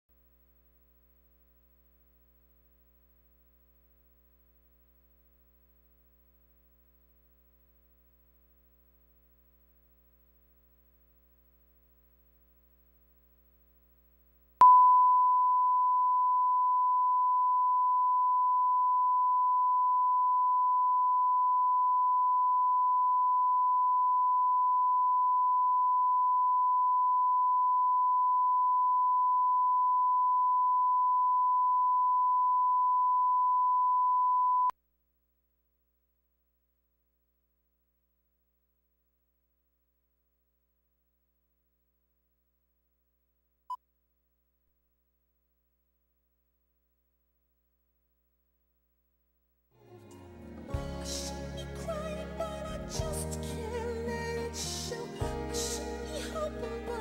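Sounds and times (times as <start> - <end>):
faint low hum: 0.1 - 40.6.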